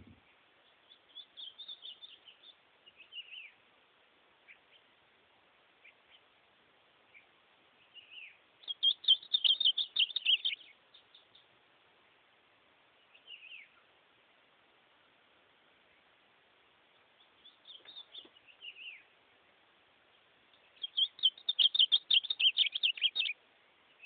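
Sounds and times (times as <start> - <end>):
bird singing: 0.0 - 3.6, 7.1 - 11.5, 13.0 - 13.9, 16.9 - 19.1, 20.5 - 24.0.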